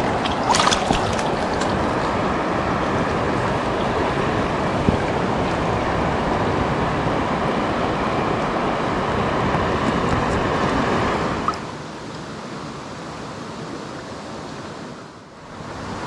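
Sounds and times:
wind buffeting microphone: 0.0 - 11.6
river current rushing: 0.0 - 16.0.

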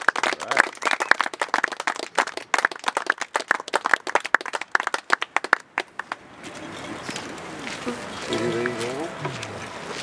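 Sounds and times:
people clapping: 0.0 - 6.2.

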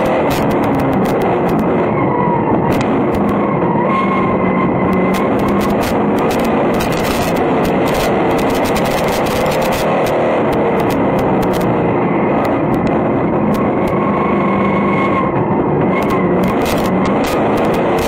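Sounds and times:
sharp clicks and ticks: 0.0 - 1.9, 2.7 - 3.5, 4.8 - 14.0, 15.8 - 18.0
race car engine running hard: 0.0 - 18.0.

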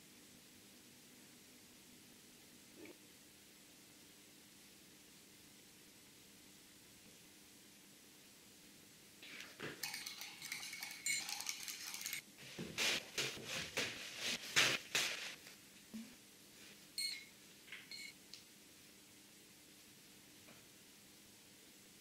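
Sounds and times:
small hard objects clinking: 9.8 - 12.2
scraping or brushing strokes: 9.8 - 15.5.

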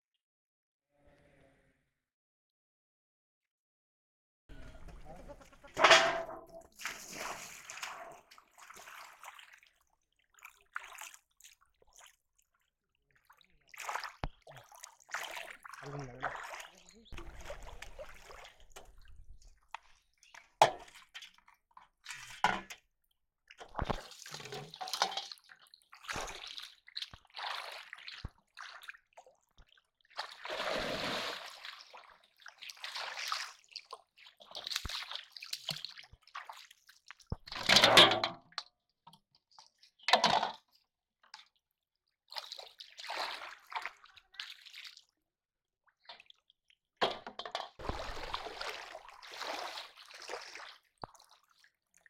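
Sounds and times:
water splashing from wading: 4.7 - 9.8, 13.6 - 19.6, 30.2 - 36.7, 47.8 - 51.2.

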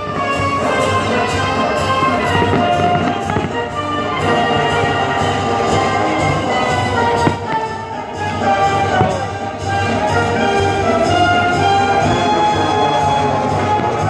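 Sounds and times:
orchestral music with brass: 0.0 - 14.0.

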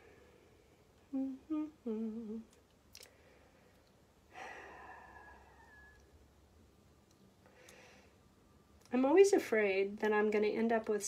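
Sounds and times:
woman humming: 1.0 - 2.6.

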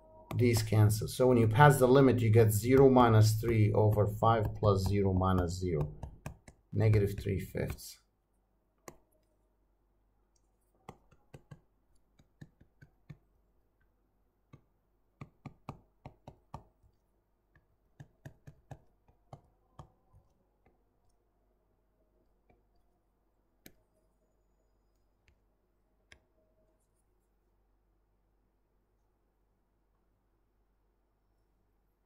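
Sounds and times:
stylus tapping on tablet screen: 0.3 - 7.8, 8.8 - 9.1, 10.8 - 13.4, 14.5 - 20.8.

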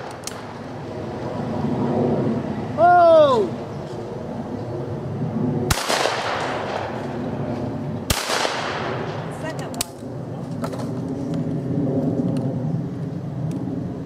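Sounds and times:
shotgun shots with echo: 5.7 - 7.0, 8.1 - 9.2.

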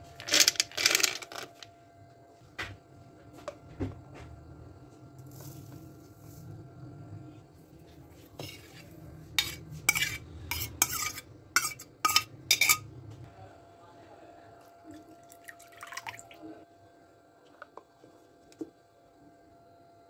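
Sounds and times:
spoon scraping metal bowl: 8.1 - 12.9.

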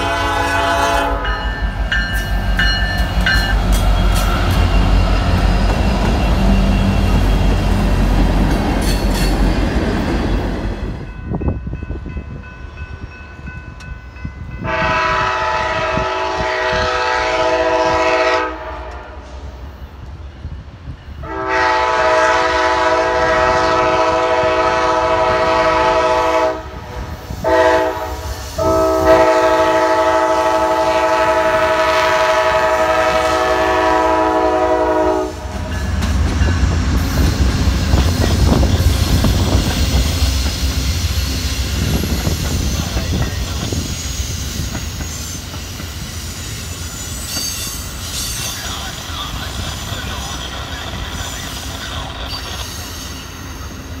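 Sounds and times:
locomotive air horn blasts: 0.0 - 1.5, 14.6 - 19.4, 21.2 - 35.6
train wheel clatter: 35.6 - 52.9.

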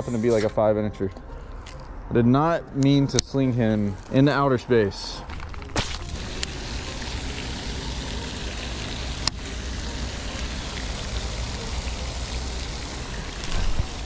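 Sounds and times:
fountain spraying water: 5.9 - 14.0.

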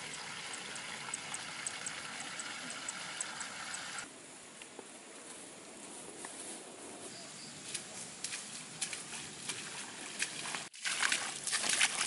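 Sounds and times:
footsteps in wet grass and mud: 5.2 - 12.0.

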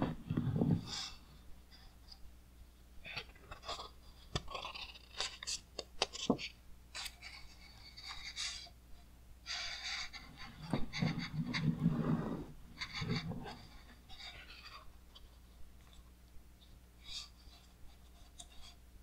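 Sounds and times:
book pages rustling and turning: 3.5 - 7.4.

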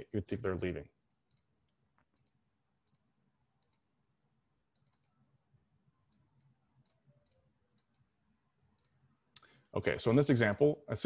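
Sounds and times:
soft little clicks: 1.3 - 3.9, 4.7 - 5.2, 6.1 - 8.1, 8.7 - 9.6.

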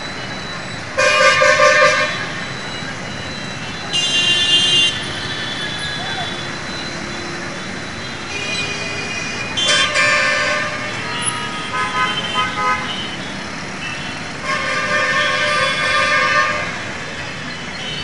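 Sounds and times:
traffic of motorbikes and cars: 0.0 - 18.0
vehicle horns honking: 1.0 - 2.4, 3.9 - 6.5, 8.2 - 17.0.

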